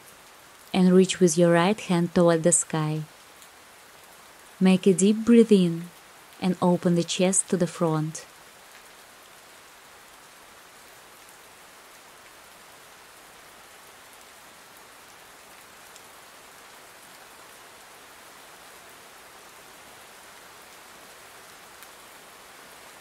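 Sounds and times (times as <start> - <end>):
steady rain hiss: 0.0 - 23.0
faint raindrop ticks: 3.0 - 4.6, 5.8 - 6.4, 8.2 - 18.8, 19.8 - 22.6.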